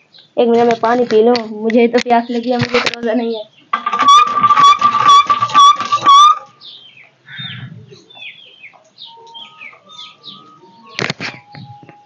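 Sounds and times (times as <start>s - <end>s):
small birds chirping: 0.0s - 3.8s, 4.4s - 12.0s
hand pump squealing and knocking: 3.8s - 6.5s.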